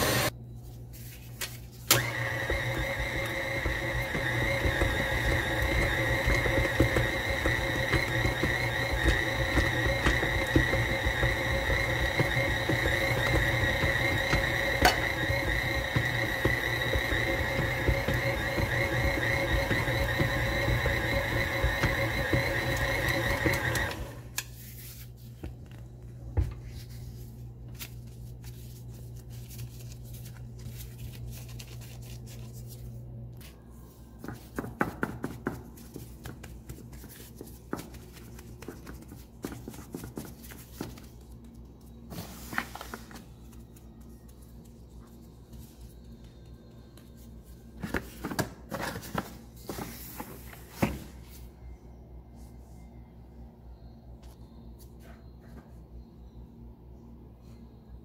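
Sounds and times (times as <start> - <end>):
stand mixer motor running: 0.0 - 0.3, 2.0 - 24.3
hands handling dough: 0.3 - 1.9, 24.4 - 51.6
faint low hum: 35.6 - 58.0.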